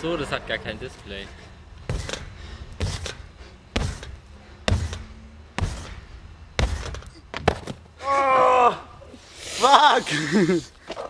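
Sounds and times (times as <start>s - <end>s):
feet thudding on trampoline: 1.8s - 7.8s
person shouting: 8.0s - 9.0s.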